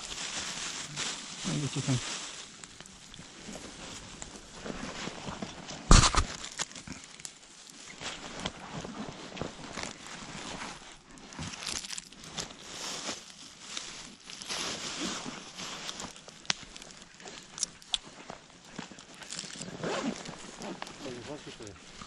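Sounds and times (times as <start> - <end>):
rummaging in fabric backpack: 0.0 - 22.0
food wrappers crinkling: 5.9 - 8.2, 11.0 - 18.1.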